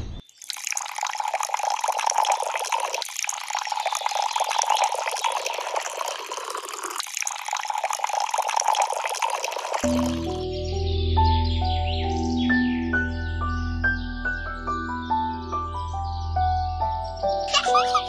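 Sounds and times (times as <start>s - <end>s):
water trickling and splashing: 0.2s - 10.4s.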